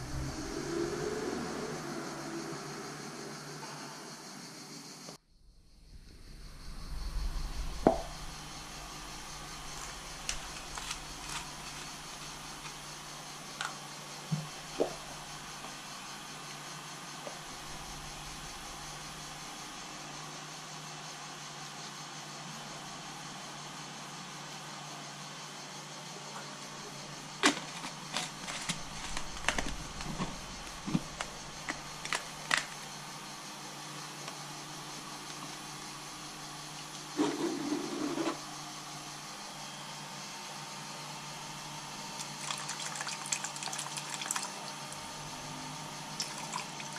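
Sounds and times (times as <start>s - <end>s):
steady low hum: 0.0s - 25.0s, 26.1s - 42.2s, 44.6s - 46.9s
steady hiss: 2.7s - 21.6s.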